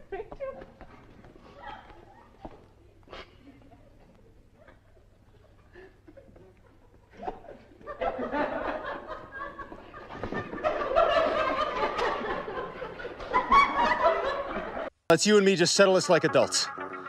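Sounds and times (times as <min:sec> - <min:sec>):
people laughing: 0:01.4 - 0:14.9.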